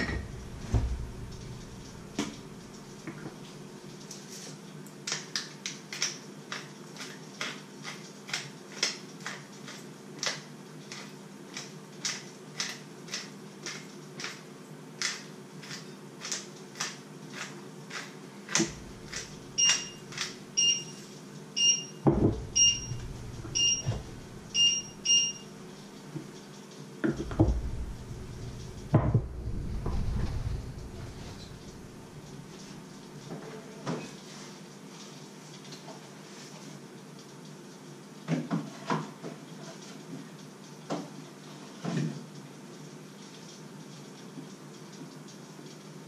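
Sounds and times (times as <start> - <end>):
short high electronic beeps: 19.6 - 20.0, 21.6 - 25.4
dull thumps: 27.1 - 31.8.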